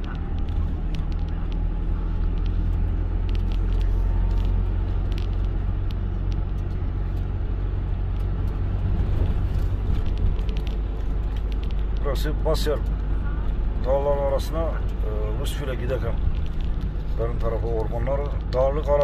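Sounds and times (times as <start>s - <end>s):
faint light ticks: 0.0s - 7.3s
car engine and tyre rumble: 0.0s - 19.0s.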